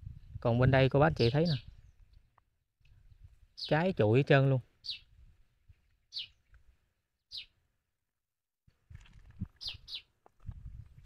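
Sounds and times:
bird chirping: 1.0s - 2.1s, 4.8s - 5.1s, 6.1s - 6.5s, 7.3s - 7.6s, 9.6s - 10.1s.

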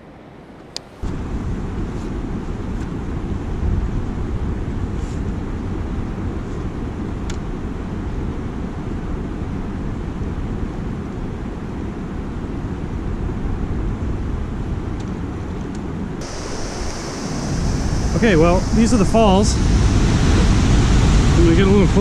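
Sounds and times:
river water rushing: 16.2s - 22.0s
wind buffeting microphone: 16.2s - 22.0s.

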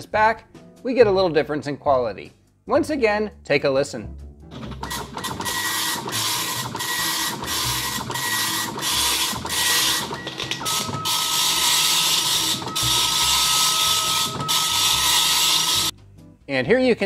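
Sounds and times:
dot-matrix printer printing: 4.6s - 15.9s.

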